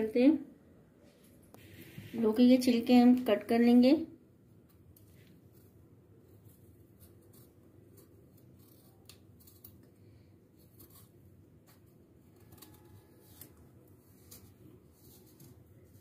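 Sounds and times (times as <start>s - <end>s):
knife peeling vegetable: 4.6s - 16.0s.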